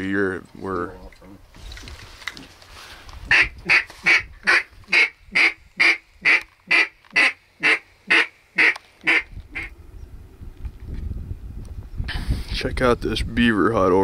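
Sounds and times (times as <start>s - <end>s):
duck quacking: 3.3s - 9.7s.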